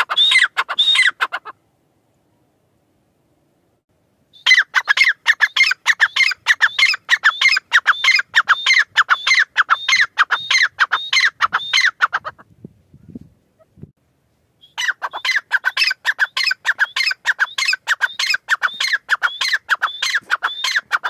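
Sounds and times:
bird calling shrill notes: 0.0s - 1.2s, 4.3s - 12.2s, 14.6s - 21.0s.

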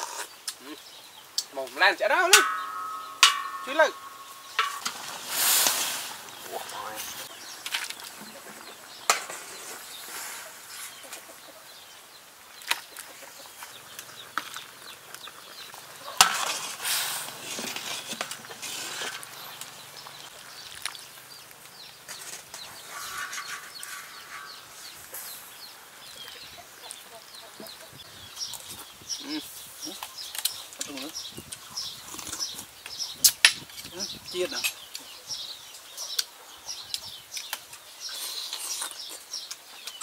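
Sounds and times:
chickens clucking: 2.1s - 11.9s, 12.8s - 20.7s, 22.0s - 30.2s
ladle clinking on metal pot: 2.3s - 5.3s.

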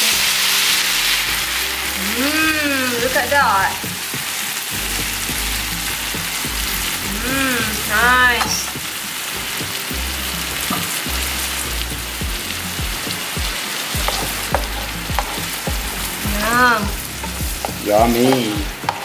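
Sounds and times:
gravy bubbling and sizzling: 0.0s - 19.0s
spatula stirring: 10.6s - 19.0s.

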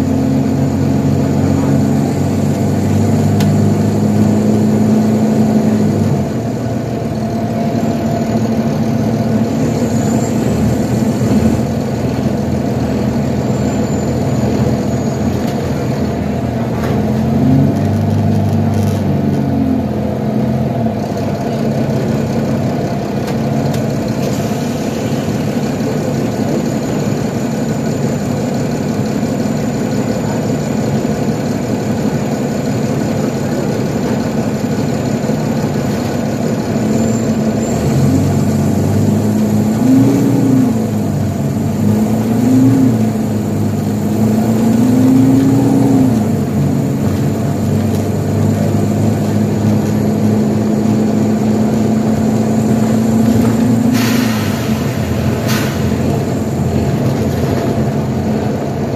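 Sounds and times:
bus diesel engine: 0.0s - 58.9s
road noise: 0.0s - 58.9s.

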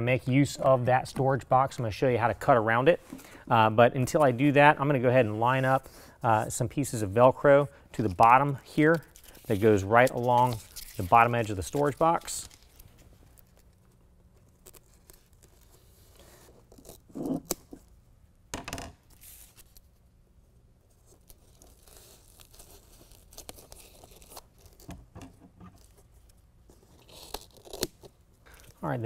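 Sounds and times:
hook-and-loop strip tearing: 8.9s - 13.8s, 26.9s - 28.2s.

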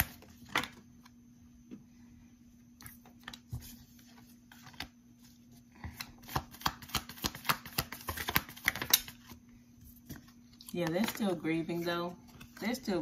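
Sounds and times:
cards being shuffled: 3.2s - 5.3s, 5.9s - 9.4s, 10.0s - 11.4s.

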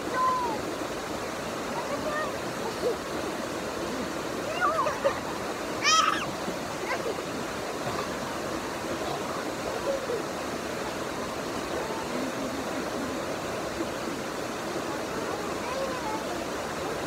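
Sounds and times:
faint voices: 0.0s - 17.0s
water rushing over rocks: 0.0s - 17.0s
high-pitched voice crying out: 5.8s - 6.3s.

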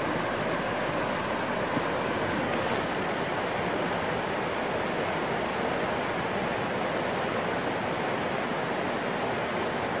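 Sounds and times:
creek water rushing: 0.0s - 10.0s.

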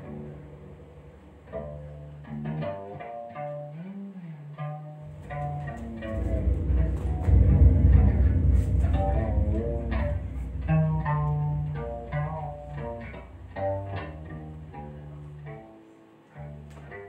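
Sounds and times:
upright string instrument notes: 0.0s - 17.0s
deep low drone: 4.9s - 15.6s.

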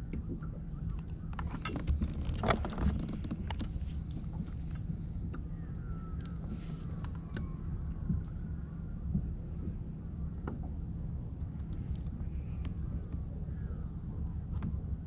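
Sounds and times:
wind rumble on microphone: 0.0s - 15.0s
knocks and clicks of handled gear: 1.3s - 4.9s.

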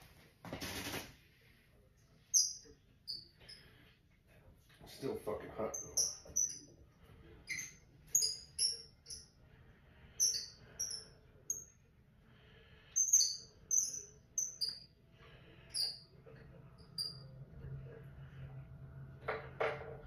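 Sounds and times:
faint low hum: 1.2s - 20.0s
small bird chirping: 2.3s - 3.7s, 5.6s - 6.8s, 7.4s - 9.4s, 10.2s - 11.8s, 12.9s - 15.0s, 15.6s - 16.1s, 16.8s - 17.3s.

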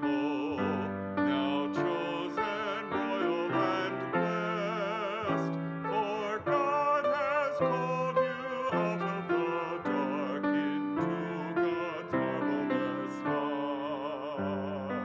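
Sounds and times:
man singing a hymn: 0.0s - 15.0s
piano accompaniment: 0.0s - 15.0s.

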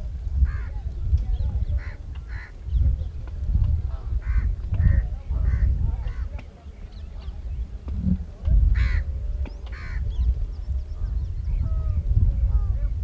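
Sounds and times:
low rumble: 7.0s - 9.4s.

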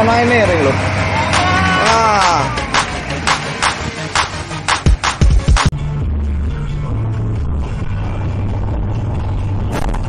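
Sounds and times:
music with steady beat: 1.3s - 10.0s
person crying out: 1.5s - 2.6s.

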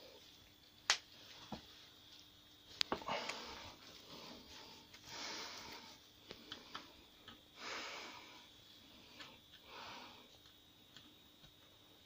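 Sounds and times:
soft hissing noise: 0.0s - 12.0s.

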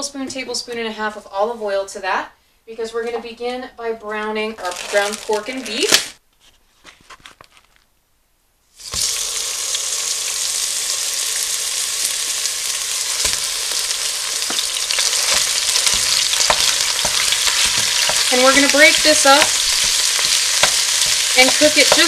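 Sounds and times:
meat sizzling in oil: 8.7s - 22.0s
wooden spoon knocking in pot: 14.4s - 22.0s.

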